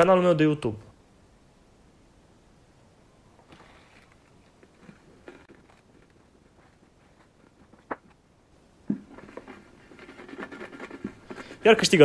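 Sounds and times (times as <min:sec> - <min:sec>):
paper slips rustling: 0:09.3 - 0:12.0.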